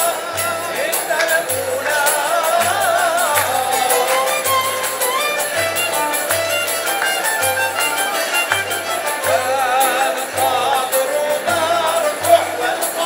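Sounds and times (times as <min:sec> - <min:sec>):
bowed violins ensemble: 0:03.7 - 0:13.0.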